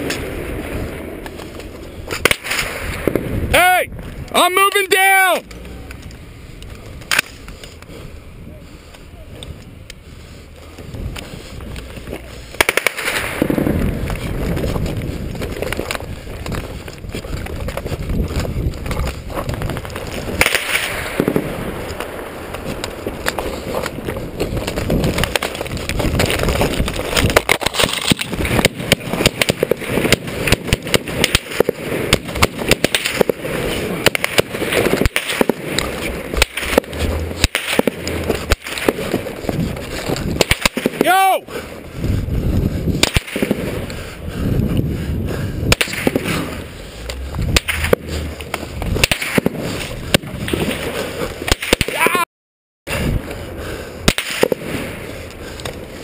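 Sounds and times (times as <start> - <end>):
sharp cracks and knocks: 1.2 - 3.3, 5.4 - 7.9, 11.1 - 41.2, 43.0 - 44.0, 45.7 - 52.2, 54.0 - 55.8.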